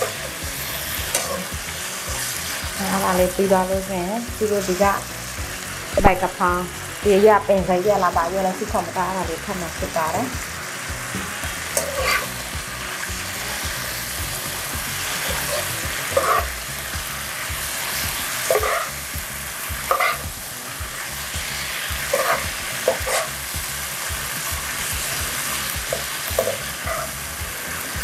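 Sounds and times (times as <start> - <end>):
spatula scraping a pan: 0.0 - 3.1, 10.0 - 16.6, 17.4 - 28.0
food sizzling in a wok: 0.0 - 28.0.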